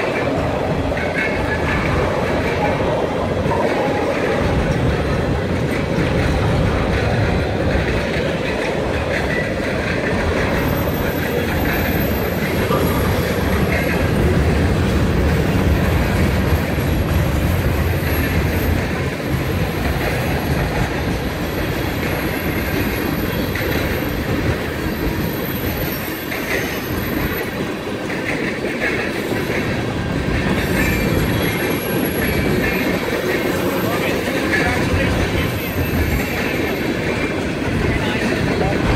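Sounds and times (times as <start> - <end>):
freight train rumbling past: 0.0 - 38.9.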